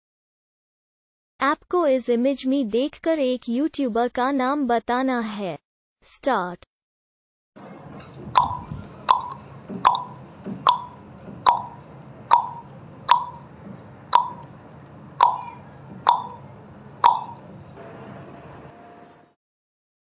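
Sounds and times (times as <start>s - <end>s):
timer ticking: 8.0s - 17.8s.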